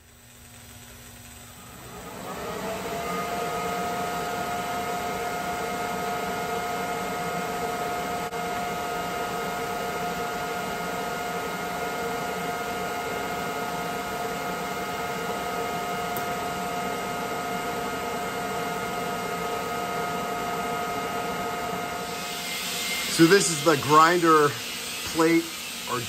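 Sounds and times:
arc welding hiss: 0.0 - 1.7, 22.0 - 26.0
electric motor whine: 0.0 - 26.0.

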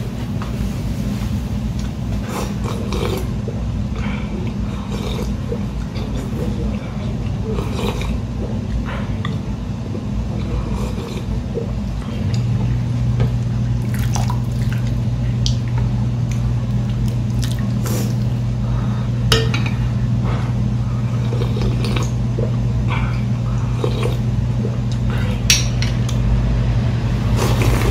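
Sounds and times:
steady low hum: 0.0 - 27.9
broth being sipped: 27.2 - 27.9.

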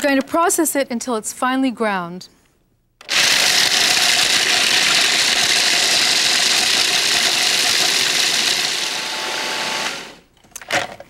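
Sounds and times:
food processor motor whirring: 3.0 - 10.2.

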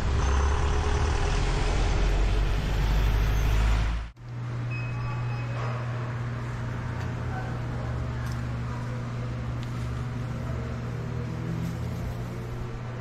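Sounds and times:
low hum: 0.0 - 4.8.

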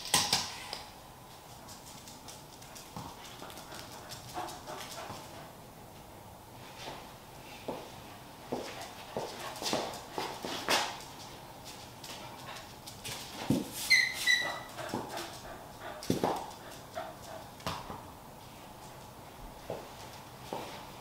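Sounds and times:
small dog whimpering: 13.9 - 14.8.

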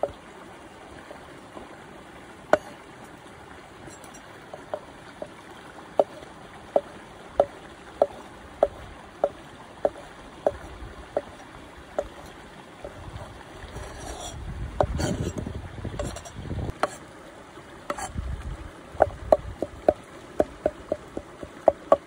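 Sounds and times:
knife scraping across board: 3.8 - 4.2, 13.7 - 15.4, 16.0 - 17.0, 17.9 - 18.1
knife chopping on wooden board: 20.4 - 22.0.

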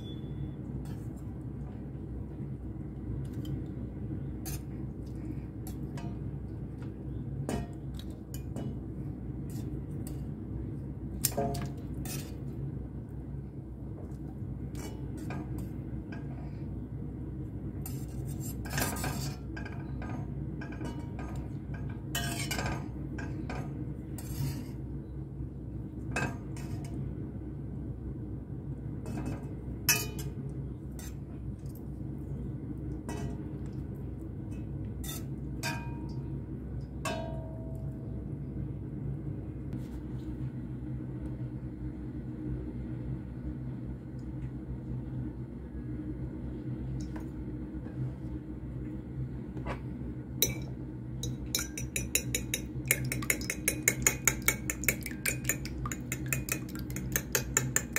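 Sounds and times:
steady low hum: 0.0 - 57.9
metal tongs clinking on pot: 50.4 - 57.9.

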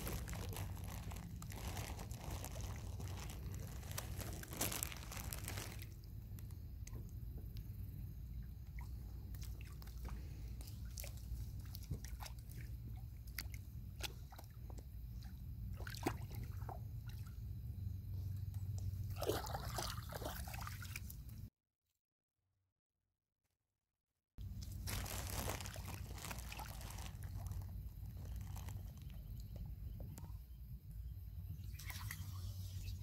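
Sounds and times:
steady low rumble: 0.0 - 9.6
water splashing: 19.1 - 21.2.

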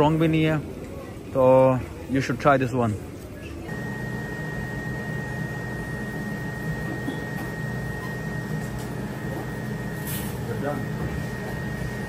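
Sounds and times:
machine mechanical hum: 3.0 - 12.0.

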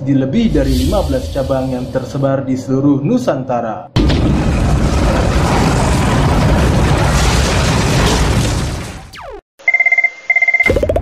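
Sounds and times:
deep rumbling whoosh: 0.4 - 2.2, 4.0 - 8.9.

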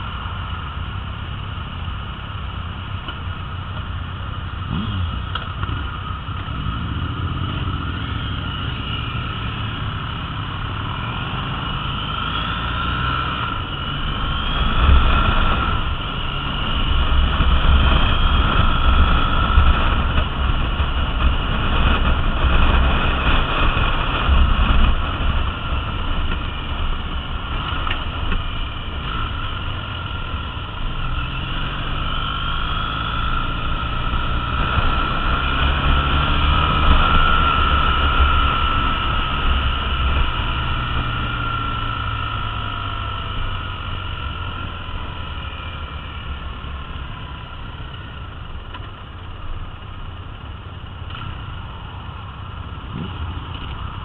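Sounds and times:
motorcycle engine running: 0.0 - 54.0
wind rushing over microphone: 9.2 - 43.6.

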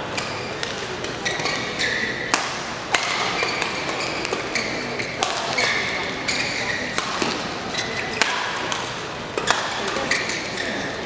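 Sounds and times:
murmur of large hall: 0.0 - 11.0
shoes squeaking on court: 0.1 - 2.4, 3.1 - 8.2, 9.8 - 11.0
racket hitting shuttlecock: 0.1 - 10.6.

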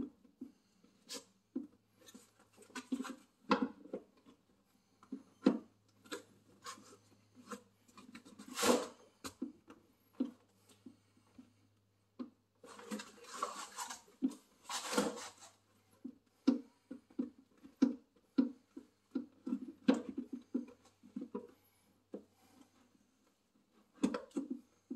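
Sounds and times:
scraping rub: 12.6 - 15.7.

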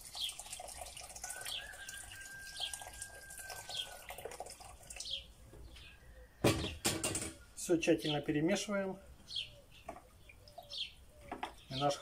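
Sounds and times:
water pouring into bowl: 0.0 - 5.2.

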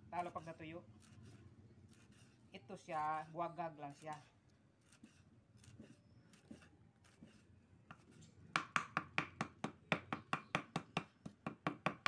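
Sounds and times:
knife chopping on wooden board: 4.9 - 12.0.

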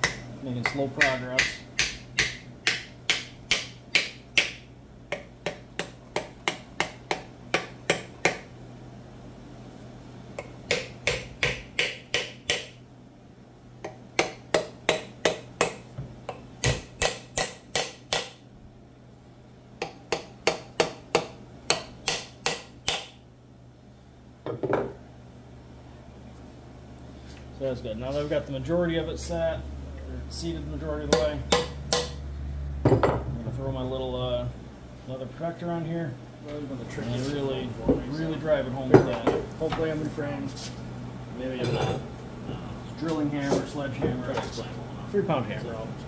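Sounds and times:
hammer tapping wooden wedge: 0.0 - 8.4, 10.4 - 12.8, 13.8 - 18.4, 19.8 - 23.1.

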